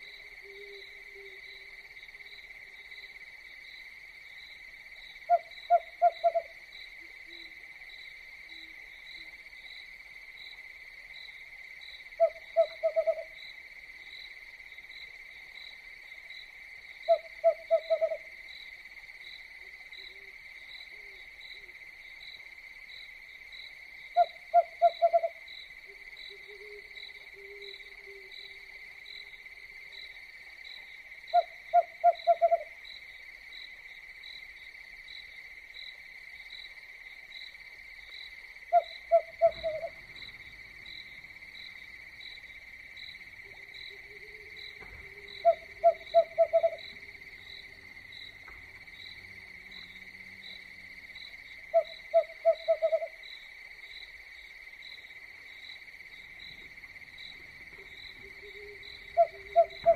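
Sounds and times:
crickets chirring: 0.0s - 59.9s
owl hooting: 5.3s - 6.6s, 12.2s - 13.4s, 17.1s - 18.3s, 24.2s - 25.4s, 31.3s - 32.8s, 38.7s - 40.0s, 43.9s - 46.8s, 51.7s - 53.2s, 58.2s - 59.9s.

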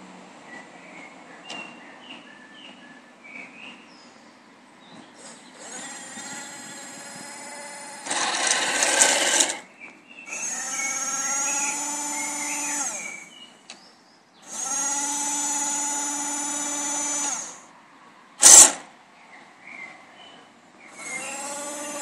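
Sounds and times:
loud rasping burst: 5.2s - 9.6s, 10.3s - 13.4s, 14.4s - 17.6s, 18.4s - 18.9s, 20.9s - 22.0s
toy tank motors whining: 5.2s - 9.6s, 10.3s - 13.4s, 14.4s - 17.7s, 20.9s - 22.0s.

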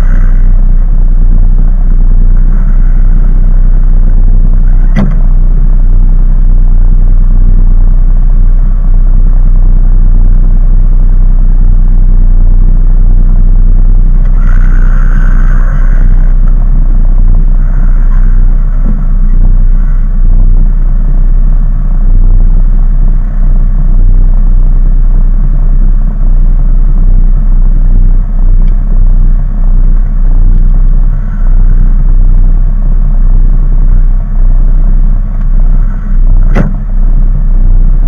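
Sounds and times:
loud low rumble: 0.0s - 38.0s
sharp click: 36.5s - 36.8s.

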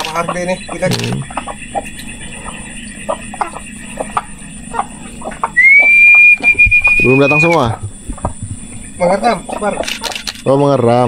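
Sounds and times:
chickens clucking softly: 0.0s - 10.1s
faint high hum: 0.0s - 11.0s
shrill whistle-like tone: 5.6s - 7.6s.

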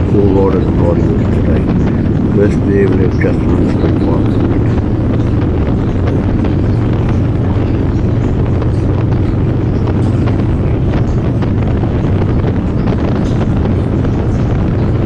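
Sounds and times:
motorcycle engine running: 0.0s - 15.0s
wind buffeting microphone: 0.0s - 15.0s.

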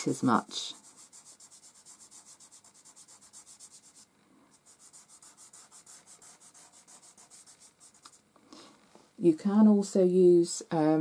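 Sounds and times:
fingertip rubbing charcoal on paper: 0.6s - 8.2s.

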